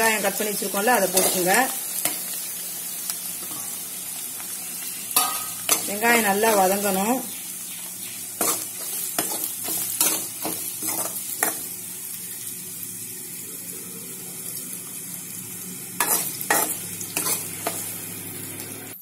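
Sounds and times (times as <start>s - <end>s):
shallots sizzling in oil: 0.0s - 19.0s
steel spoon scraping metal pan: 16.0s - 17.9s.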